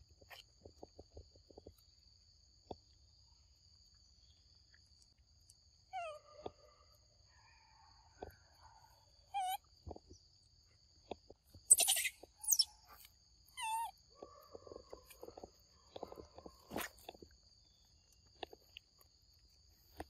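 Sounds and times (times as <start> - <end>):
wavering chirps: 11.7 - 12.8.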